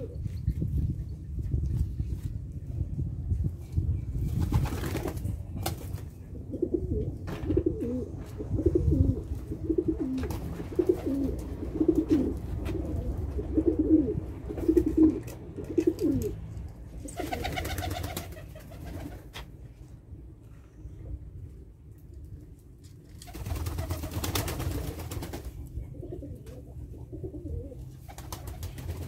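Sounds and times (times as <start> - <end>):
steady low rumble: 0.0 - 17.2, 24.8 - 28.0
pigeons cooing: 6.3 - 16.4, 26.0 - 28.1.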